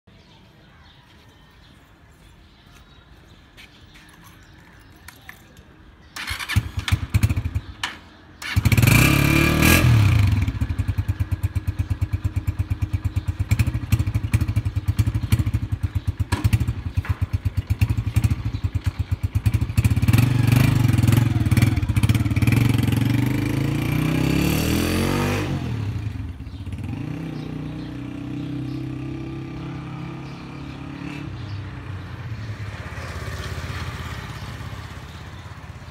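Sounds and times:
motorcycle engine idling and revving: 0:04.0 - 0:35.9
motorcycle kick-starting: 0:04.4 - 0:24.4.

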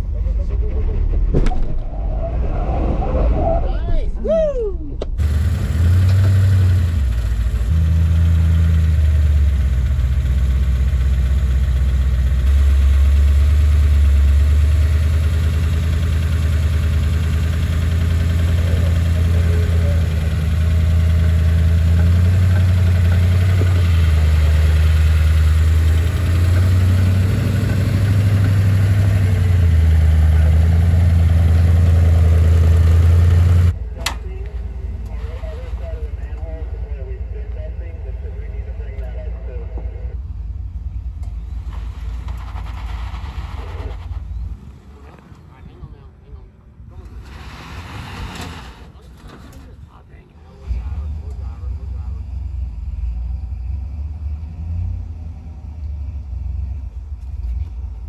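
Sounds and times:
off-road vehicle engine revving: 0:05.2 - 0:40.1, 0:46.9 - 0:58.0.

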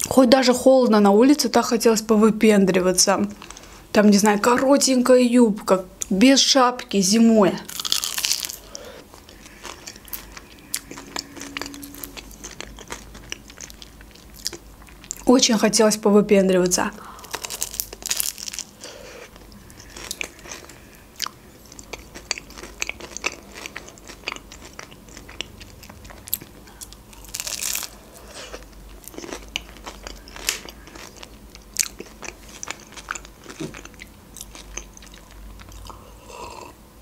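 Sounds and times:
crunchy pastry chewing: 0:07.7 - 0:15.3, 0:17.2 - 0:36.7.

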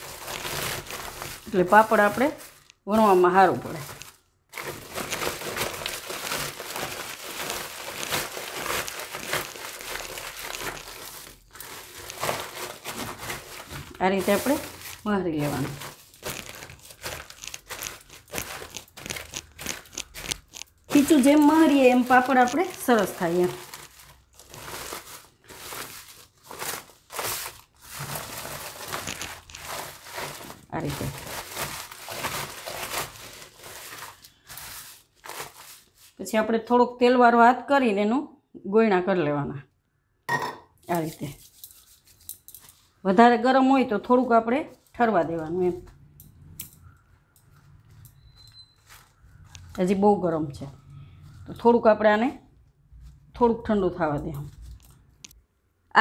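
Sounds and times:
hands kneading dough: 0:00.0 - 0:36.2
plastic sheet crinkling and rustling: 0:00.0 - 0:36.2, 0:40.9 - 0:43.1, 0:47.5 - 0:51.4, 0:53.0 - 0:55.4.

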